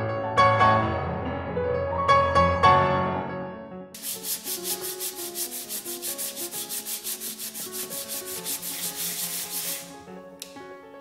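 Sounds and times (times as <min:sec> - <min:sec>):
sandpaper rubbing on wood: 0:04.0 - 0:10.0.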